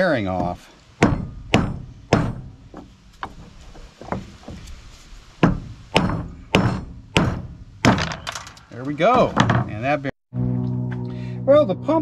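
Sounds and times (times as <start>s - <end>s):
hammer tapping metal: 0.4s - 3.4s.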